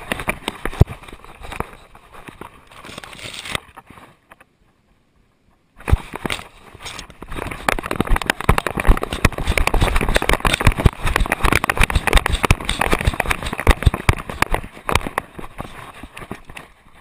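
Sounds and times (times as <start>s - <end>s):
camera knocks and rattles: 5.8s - 16.6s.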